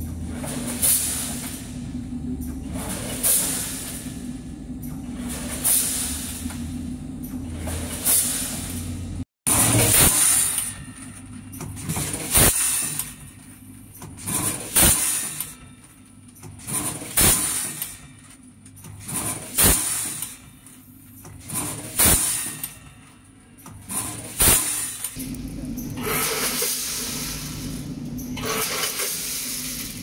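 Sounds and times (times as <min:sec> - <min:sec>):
station mechanisms noisy bursts: 0:00.0 - 0:13.4, 0:23.6 - 0:30.0
packing machine sharp clack: 0:02.4 - 0:30.0.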